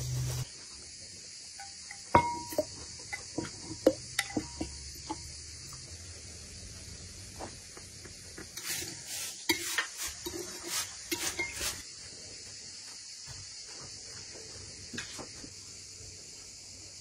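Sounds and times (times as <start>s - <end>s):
metal spoon clinking in bowl: 1.6s - 3.2s, 4.2s - 5.2s.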